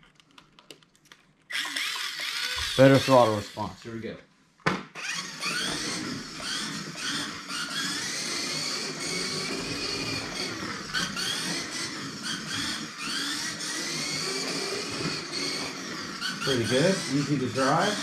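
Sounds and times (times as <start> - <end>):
toy car electric motor whining: 1.5 - 3.8, 4.9 - 18.0.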